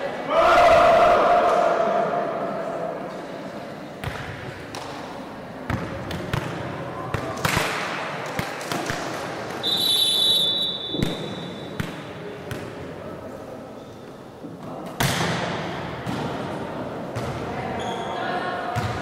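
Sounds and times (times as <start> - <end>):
players and onlookers shouting: 0.2 - 2.5
referee's whistle: 9.6 - 11.7
volleyball struck and bouncing: 10.8 - 12.7.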